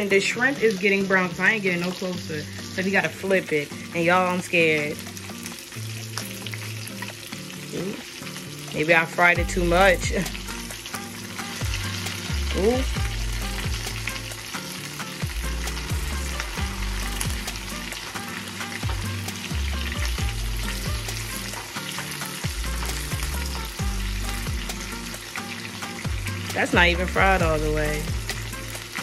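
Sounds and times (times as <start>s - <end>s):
shrimp sizzling in oil: 0.0s - 29.0s.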